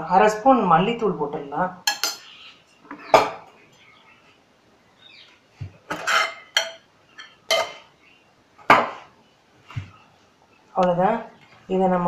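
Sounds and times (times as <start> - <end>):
metal kitchenware clinking: 1.8 - 2.3, 5.9 - 7.9.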